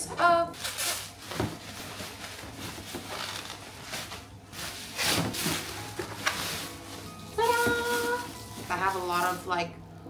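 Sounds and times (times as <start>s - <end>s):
bubble wrap rustling and crinkling: 0.5s - 9.8s.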